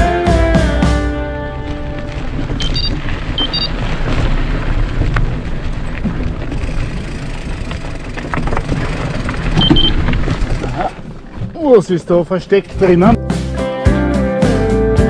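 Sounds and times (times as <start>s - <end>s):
bike tyres rolling over dirt: 1.0s - 13.2s
wind rumbling on microphone: 1.2s - 13.2s
bike clicks and rattles: 1.6s - 13.1s.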